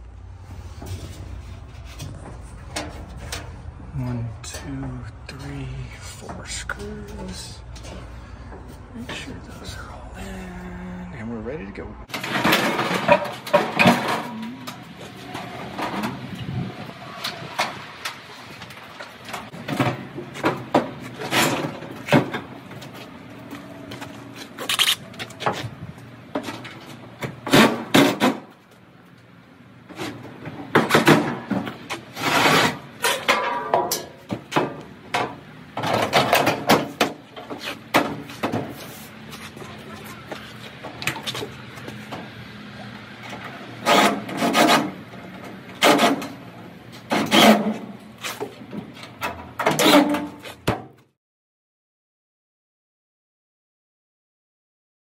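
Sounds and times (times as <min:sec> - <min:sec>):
sheet metal panels clanking: 0:12.1 - 0:16.6.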